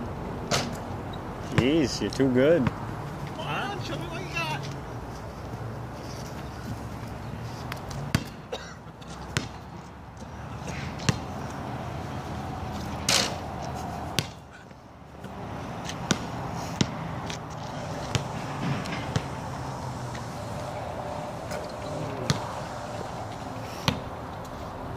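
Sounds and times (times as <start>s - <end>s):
basketball bouncing on asphalt: 2.6s - 2.9s, 7.7s - 10.4s, 11.0s - 11.6s, 12.7s - 14.4s, 15.2s - 19.4s, 22.2s - 22.6s, 23.8s - 24.1s.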